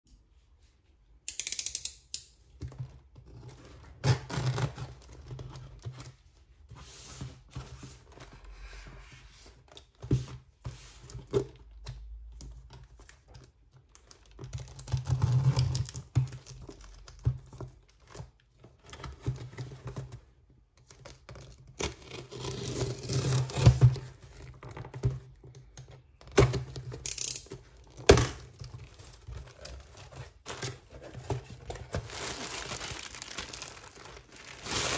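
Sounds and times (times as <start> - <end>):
plastic crinkling: 27.8 - 34.9.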